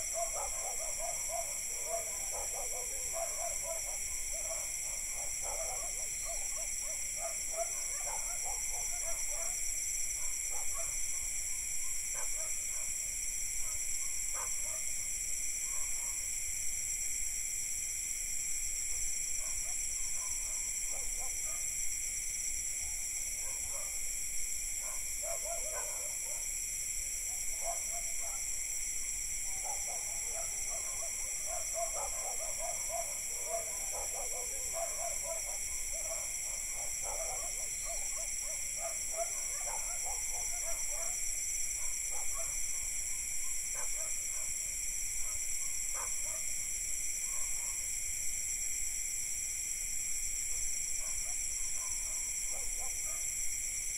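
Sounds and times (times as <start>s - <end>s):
crickets and cicadas droning: 0.0s - 53.9s
distant dogs barking: 0.1s - 9.6s, 13.6s - 14.9s, 23.4s - 24.0s, 24.8s - 26.5s, 27.3s - 28.5s, 29.5s - 41.2s, 41.8s - 44.6s, 45.2s - 46.5s, 47.3s - 47.8s, 51.0s - 53.3s.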